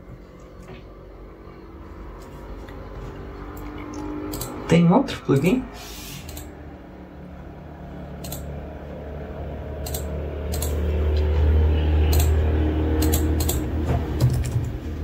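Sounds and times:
low hum: 0.0 - 15.0
computer mouse clicks: 4.3 - 4.6, 6.2 - 6.5, 8.2 - 8.5, 9.8 - 10.8, 12.1 - 12.3, 13.0 - 13.6.

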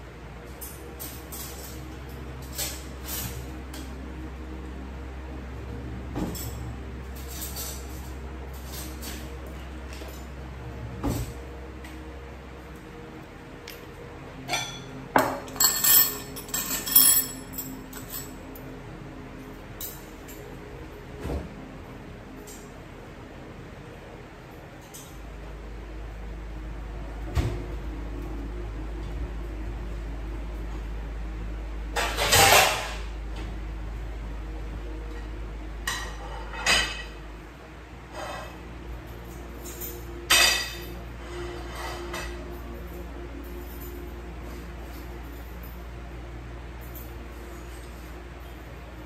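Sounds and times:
tableware clinking: 14.4 - 18.7, 35.8 - 37.2, 39.6 - 42.6.

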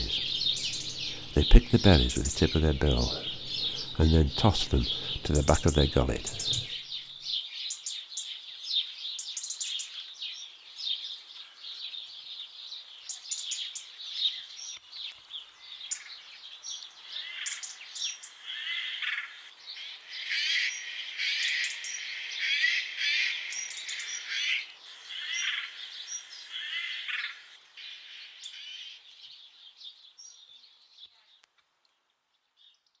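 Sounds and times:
songbirds chirping and singing: 0.0 - 31.5.

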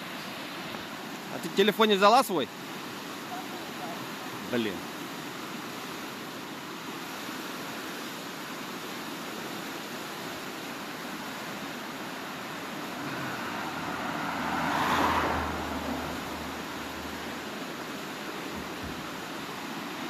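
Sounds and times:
vehicle road noise: 11.0 - 20.0.

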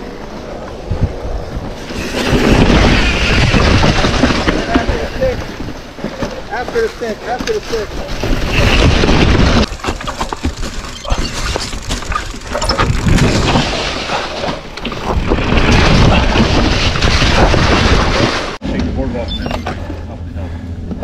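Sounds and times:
wind rushing over microphone: 0.0 - 5.9
bike clattering over bumps: 1.6 - 18.6.

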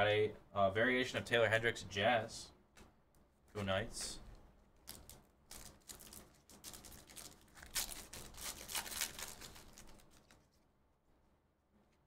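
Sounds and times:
trading cards rustling and clicking: 4.8 - 10.6.

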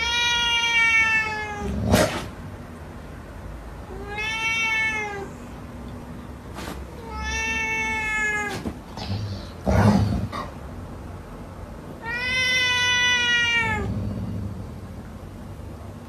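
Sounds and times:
cat meowing: 0.0 - 1.8, 3.9 - 5.4, 7.0 - 9.6, 12.0 - 13.9.

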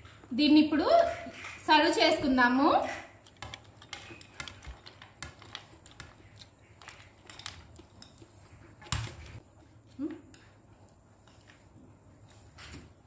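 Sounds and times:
spoon scraping in steel bowl: 3.2 - 8.9.

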